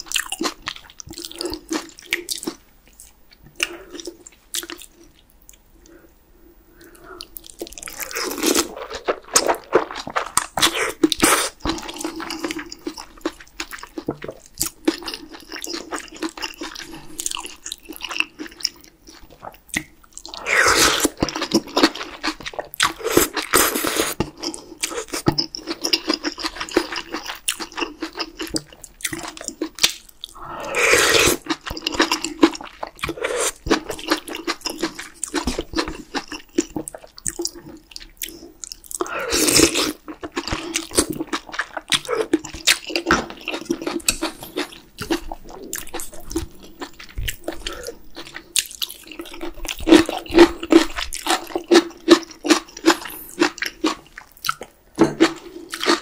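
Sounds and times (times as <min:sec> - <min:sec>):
wet chewing and smacking: 0:06.8 - 0:20.4, 0:21.0 - 0:30.4, 0:31.3 - 0:56.0
slurping noodles: 0:30.4 - 0:31.6.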